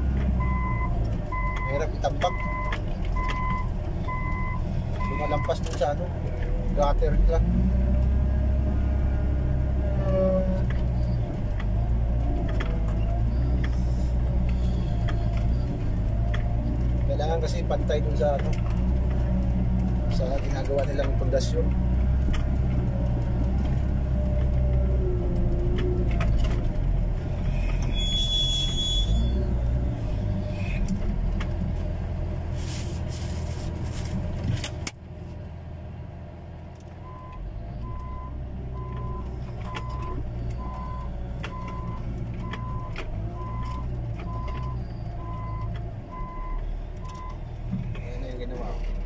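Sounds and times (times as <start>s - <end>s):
diesel engine working hard: 0.0s - 49.0s
reversing alarm beeping: 0.4s - 5.5s
short squeal: 27.2s - 30.8s.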